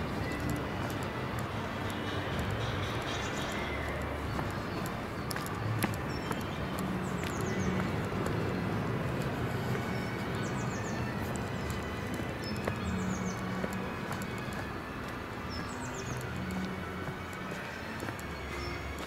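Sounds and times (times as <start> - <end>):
footsteps on dirt path: 0.0 - 19.0
small birds chirping: 0.0 - 19.0.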